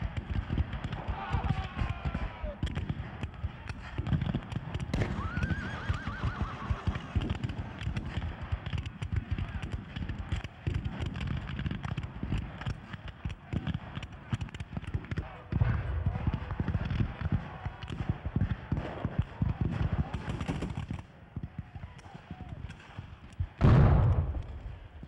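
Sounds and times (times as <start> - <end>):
hoofbeats: 0.0 - 25.0
horse whinnying: 5.0 - 7.2.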